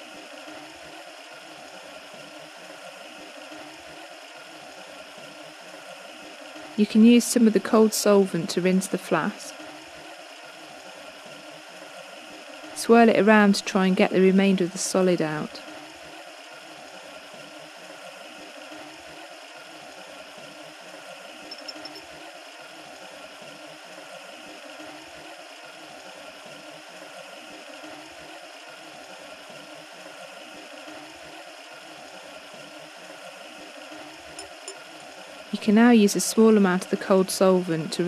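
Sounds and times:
tap water rushing through aspirator: 21.4s - 22.2s, 33.6s - 35.2s.

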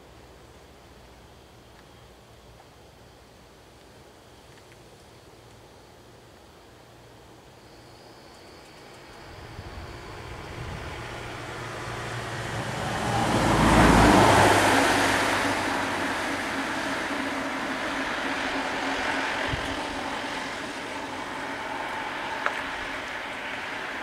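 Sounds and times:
vehicle passing on road: 9.0s - 24.0s.

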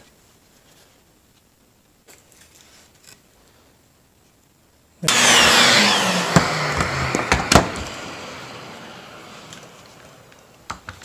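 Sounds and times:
workshop machine rushing noise: 5.1s - 10.3s.

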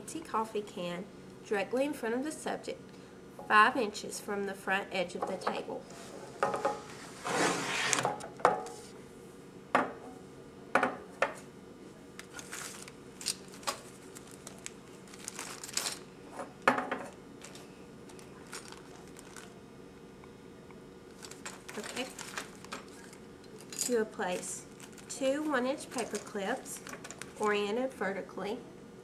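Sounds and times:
faint steady hum: 0.0s - 29.0s
object sliding on wooden table: 5.9s - 8.0s
paper rustling: 12.3s - 16.0s, 17.4s - 19.6s, 21.2s - 23.2s.

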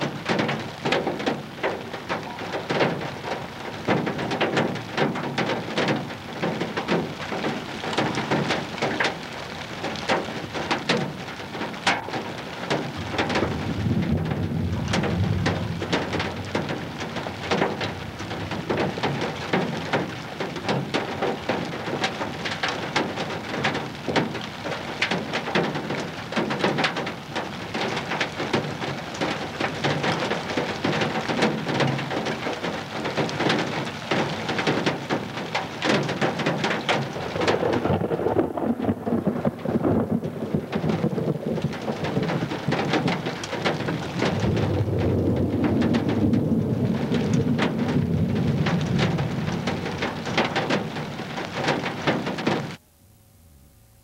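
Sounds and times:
dense crackle of hits: 0.0s - 52.8s
storm wind buffeting microphone: 0.0s - 52.8s
deep rumble: 13.0s - 18.8s, 37.0s - 42.8s, 44.0s - 50.6s.

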